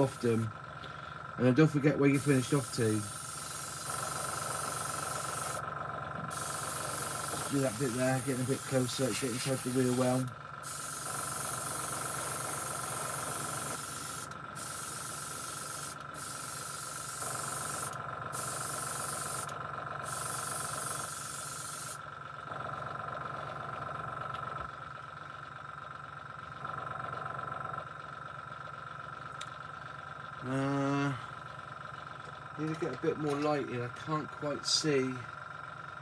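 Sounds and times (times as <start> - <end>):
airbrush spraying hissing bursts: 0.0 - 0.4, 2.1 - 5.6, 6.3 - 22.0
steady low hum: 0.0 - 36.0.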